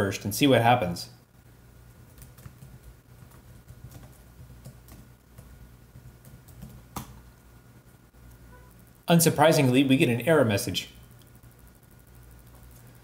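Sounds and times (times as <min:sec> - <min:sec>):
keyboard typing: 0:02.0 - 0:07.2, 0:11.1 - 0:13.0.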